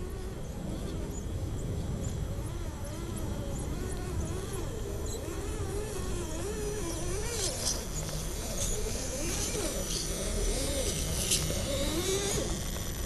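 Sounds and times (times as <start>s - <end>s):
electric motor and gears whining: 0.0s - 13.0s
gravel crunching under tyres: 5.0s - 13.0s.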